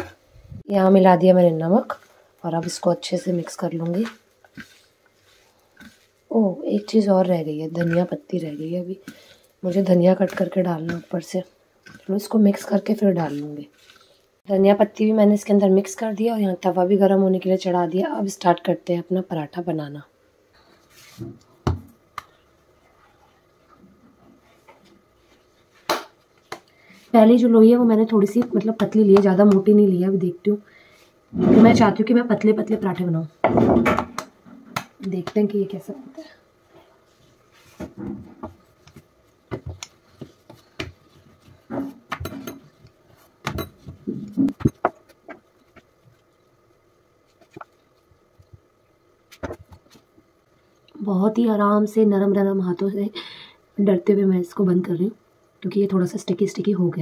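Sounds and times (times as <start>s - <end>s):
rolling pin rolling dough: 1.3s - 14.1s, 37.1s - 46.4s.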